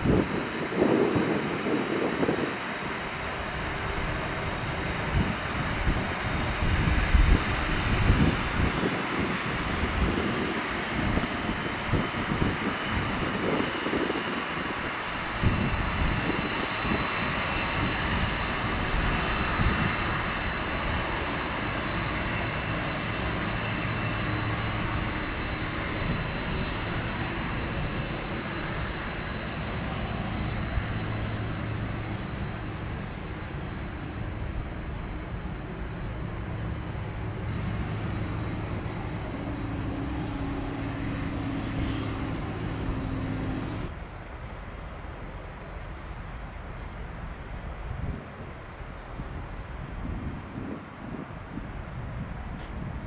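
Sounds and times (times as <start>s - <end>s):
jet engines roaring: 0.0s - 53.0s.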